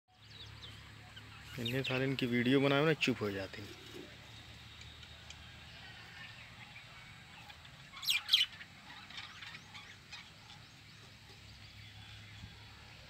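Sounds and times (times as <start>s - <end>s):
budgerigars chirping: 0.2s - 2.1s, 7.2s - 12.0s.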